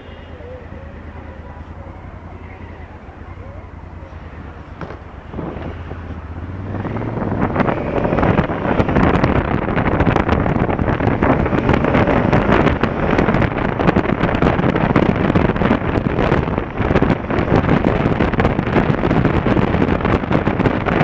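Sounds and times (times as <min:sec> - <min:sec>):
motorcycle engine: 0:00.0 - 0:21.0
wind rushing over microphone: 0:00.0 - 0:21.0.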